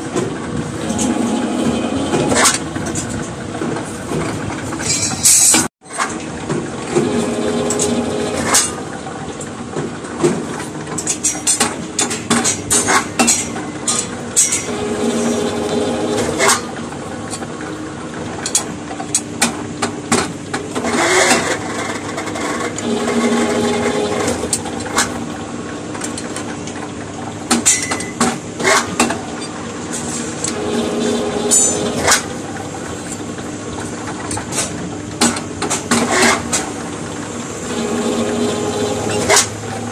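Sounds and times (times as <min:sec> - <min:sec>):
bending machine motor humming: 0:00.0 - 0:04.8, 0:06.4 - 0:09.7, 0:13.8 - 0:18.4, 0:22.5 - 0:26.0, 0:29.6 - 0:39.9
steel bars clanking: 0:00.8 - 0:03.2, 0:04.8 - 0:06.1, 0:11.0 - 0:16.8, 0:27.6 - 0:32.4.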